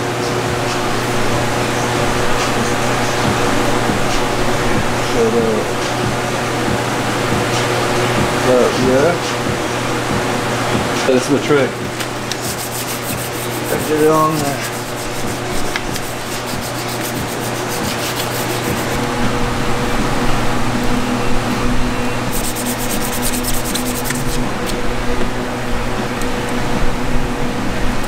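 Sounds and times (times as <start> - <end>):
low steady hum: 11.7 - 28.0
hand rubbing sticker on plastic: 12.4 - 19.0, 22.3 - 24.4.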